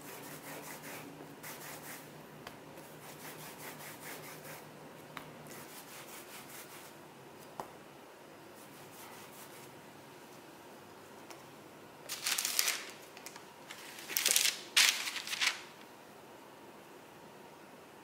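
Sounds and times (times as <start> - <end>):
baking paper rustling: 12.1 - 15.8.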